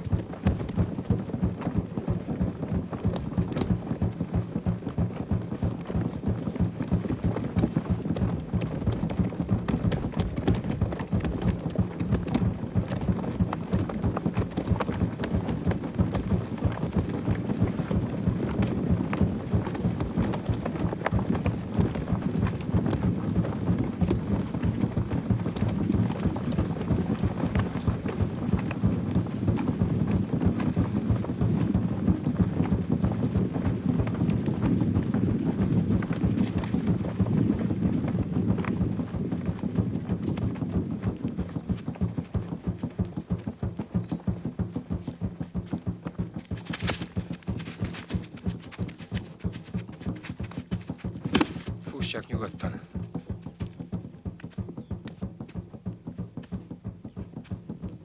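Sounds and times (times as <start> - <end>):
dense patter of rapid beats: 0.0 - 58.0.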